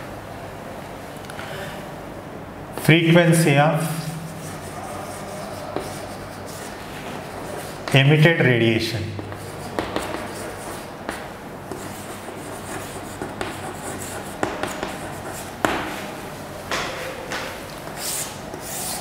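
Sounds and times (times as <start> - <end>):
chalk scratching on blackboard: 4.0 - 8.0, 9.2 - 16.0, 17.8 - 19.0
chalk tapping on board: 4.4 - 6.2, 9.2 - 16.0.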